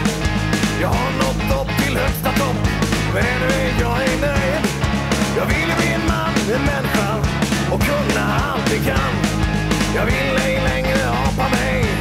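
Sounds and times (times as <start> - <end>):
rock song with guitar: 0.0 - 12.0.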